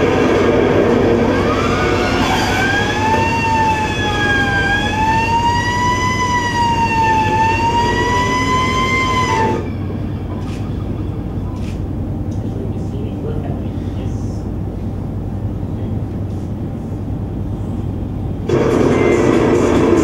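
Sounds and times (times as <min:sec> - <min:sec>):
fire engine siren wailing: 0:00.0 - 0:11.5.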